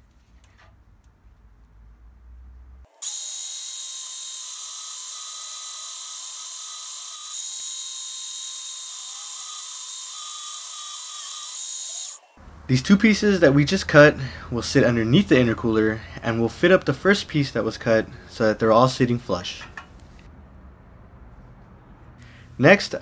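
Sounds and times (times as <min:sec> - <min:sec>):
band saw screeching through steel: 0:03.0 - 0:12.4.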